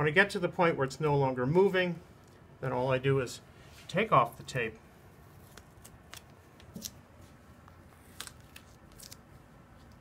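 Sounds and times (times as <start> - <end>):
tape peeling off paper: 5.4 - 7.0, 8.0 - 10.0.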